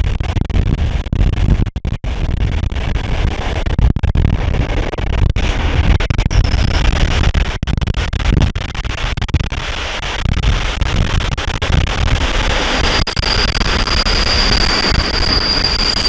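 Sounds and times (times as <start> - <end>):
high steady squeal: 6.2 - 6.9, 12.7 - 16.0.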